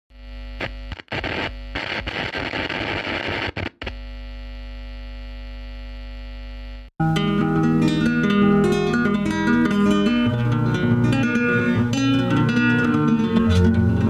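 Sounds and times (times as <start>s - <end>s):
crackling static bursts: 0.1s - 6.9s
electrical buzzing hum: 0.1s - 6.9s.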